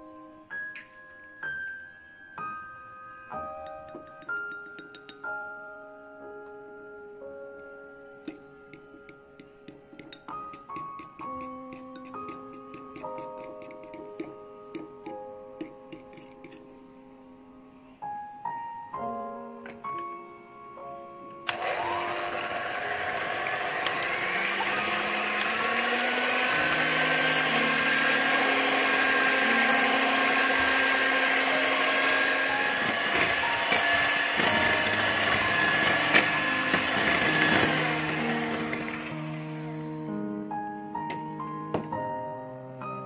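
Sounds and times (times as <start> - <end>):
electric hand mixer whining: 21.5 - 40.2.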